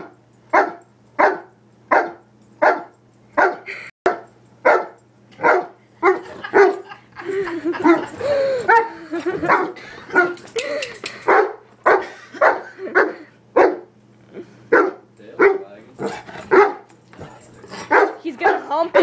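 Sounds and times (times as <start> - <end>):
dog barking: 0.0 - 6.9, 8.7 - 10.4, 11.3 - 13.9, 14.7 - 16.9, 17.9 - 19.0.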